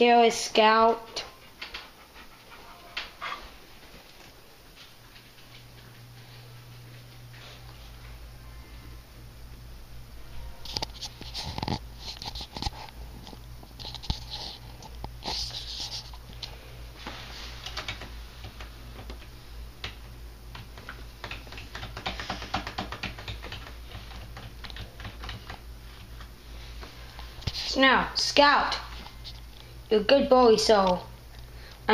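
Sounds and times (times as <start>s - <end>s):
dog moving with hissy bursts: 13.8s - 16.2s.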